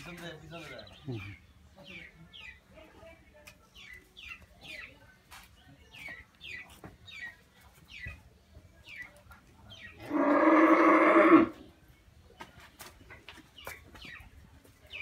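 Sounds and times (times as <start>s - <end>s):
small birds chirping: 0.0s - 15.0s
cow mooing: 10.0s - 11.6s.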